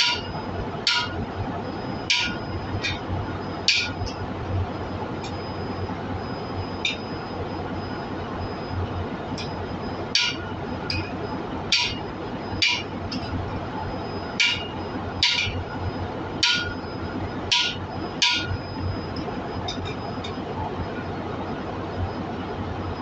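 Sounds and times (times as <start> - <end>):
hammer striking steel: 0.0 - 0.3, 0.9 - 1.2, 2.1 - 3.0, 3.7 - 4.1, 10.2 - 11.1, 11.7 - 12.0, 12.6 - 13.3, 14.4 - 15.6, 16.4 - 16.8, 17.5 - 18.5.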